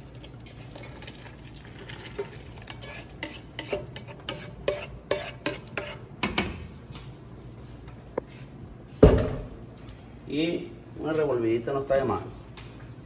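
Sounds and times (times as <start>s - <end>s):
ladle scraping a frying pan: 0.4s - 6.1s.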